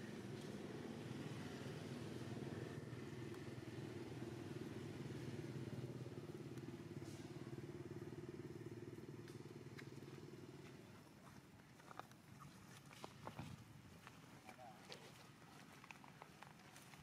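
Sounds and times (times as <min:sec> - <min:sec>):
faint low engine drone: 0:00.0 - 0:12.4.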